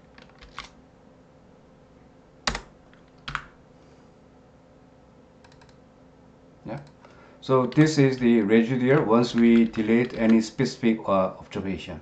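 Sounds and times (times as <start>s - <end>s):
keyboard keystrokes: 2.5s - 3.5s, 5.4s - 5.8s, 8.9s - 10.4s.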